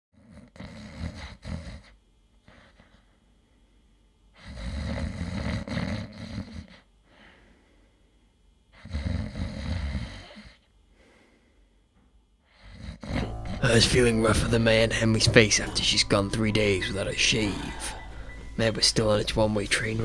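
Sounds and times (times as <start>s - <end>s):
man snoring: 4.5s - 6.7s, 8.8s - 10.6s.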